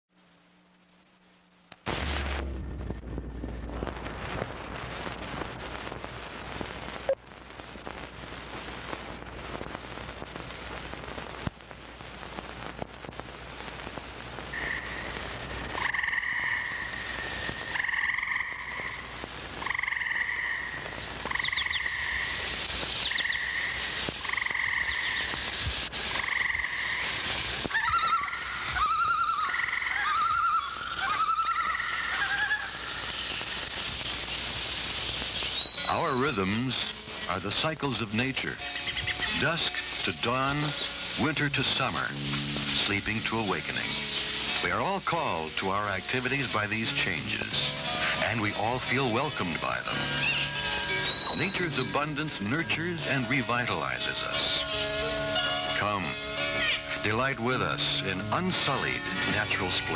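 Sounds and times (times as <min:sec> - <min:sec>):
steady hiss and low hum: 0:00.1 - 0:59.9
frog higher chirps: 0:19.6 - 0:25.4, 0:26.1 - 0:33.1, 0:50.0 - 0:53.1
frogs calling in pulsed trills: 0:26.1 - 0:32.6.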